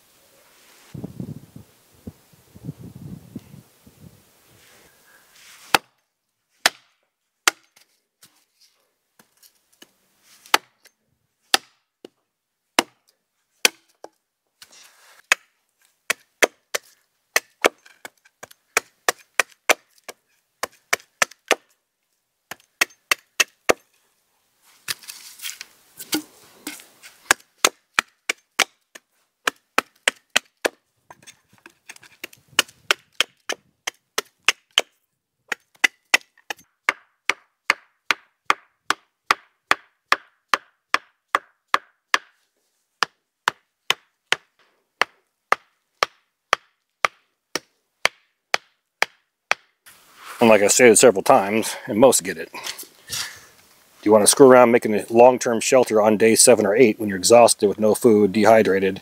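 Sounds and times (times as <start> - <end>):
rustling: 0.2 - 1.0, 4.4 - 5.8, 14.6 - 16.0, 23.8 - 27.3, 49.9 - 50.7
axe chopping wood: 5.7 - 6.0, 6.6 - 7.8, 10.5 - 10.8, 11.5 - 12.2, 12.8 - 13.0, 13.6 - 14.1, 15.3 - 21.7, 22.5 - 23.9, 26.0 - 31.2, 31.9 - 42.4, 43.0 - 49.7.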